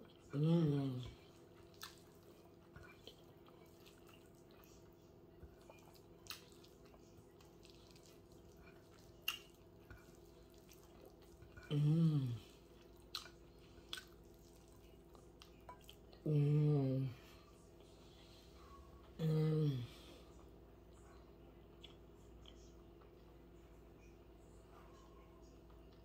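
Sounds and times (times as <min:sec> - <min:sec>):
fingers and mouth eating wet food: 0:00.0 - 0:16.2, 0:20.9 - 0:23.3
faint room hum: 0:00.0 - 0:26.0
person humming mm: 0:00.3 - 0:01.2, 0:11.6 - 0:12.5, 0:16.2 - 0:17.2, 0:19.2 - 0:20.0.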